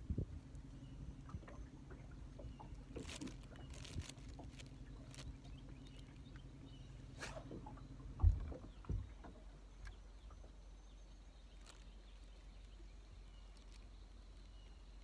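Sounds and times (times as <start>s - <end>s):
low hum: 0.0s - 15.0s
brief swishes: 7.2s - 7.5s.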